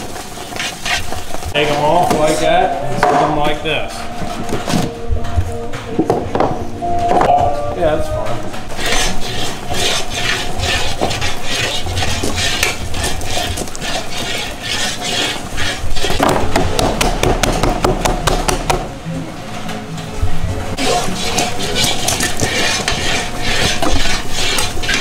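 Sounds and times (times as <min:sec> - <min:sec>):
utensil scraping plastic tub: 0:08.7 - 0:16.5, 0:20.7 - 0:25.0
ladle scraping in iron kettle: 0:20.8 - 0:25.0.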